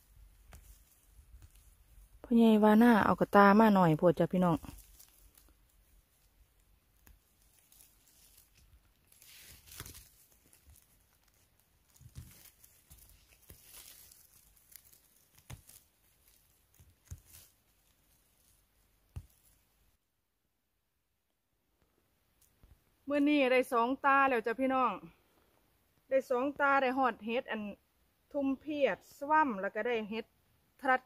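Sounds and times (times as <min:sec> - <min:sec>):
rustling of forest litter: 0:00.0 - 0:20.0.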